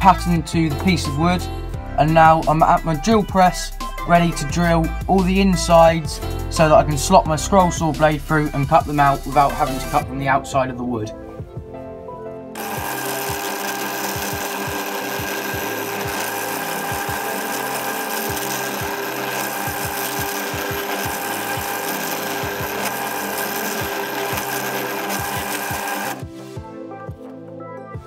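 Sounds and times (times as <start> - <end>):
drill press whining: 12.6 - 26.2.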